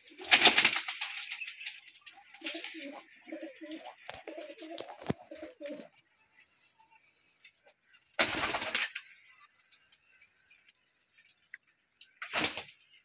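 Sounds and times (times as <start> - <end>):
pigeon wingbeats clattering: 0.0 - 5.9, 8.2 - 9.2, 12.2 - 12.8
pigeons cooing: 2.2 - 6.0.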